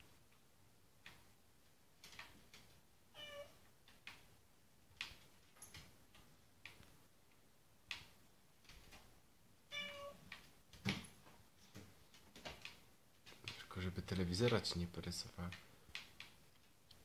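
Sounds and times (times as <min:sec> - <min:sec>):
cat meowing: 0:03.1 - 0:03.6, 0:09.7 - 0:10.2
light clicks and taps: 0:04.9 - 0:09.1, 0:10.3 - 0:17.0.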